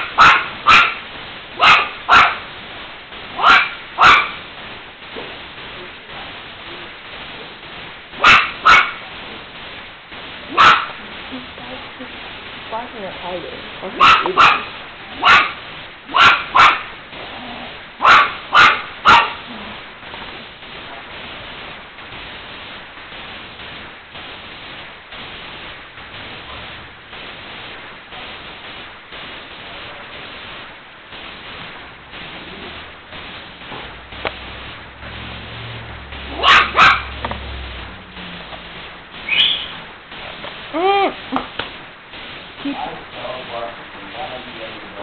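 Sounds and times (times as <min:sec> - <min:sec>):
small dog barking: 0:00.0 - 0:01.0, 0:01.6 - 0:02.5, 0:03.4 - 0:04.4, 0:08.2 - 0:09.1, 0:10.5 - 0:11.0, 0:13.9 - 0:16.9, 0:18.0 - 0:19.6, 0:36.3 - 0:37.2.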